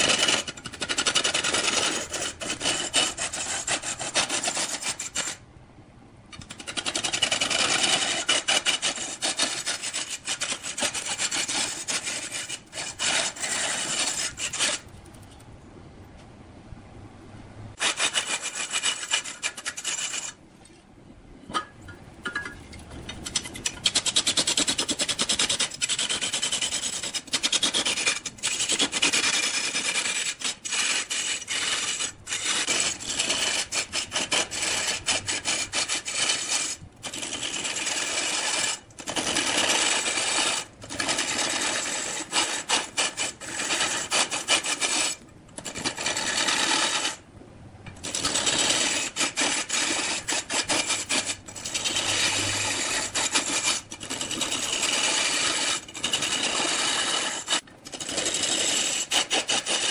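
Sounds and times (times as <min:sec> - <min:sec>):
lathe tool scraping wood: 0:06.5 - 0:14.9, 0:17.8 - 0:20.4, 0:23.7 - 0:47.2, 0:48.0 - 0:59.9.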